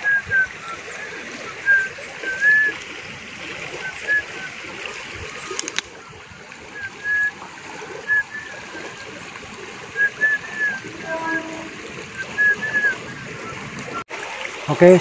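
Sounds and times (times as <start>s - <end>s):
flowing stream: 0.0s - 15.0s
person whistling a tune: 6.7s - 7.4s.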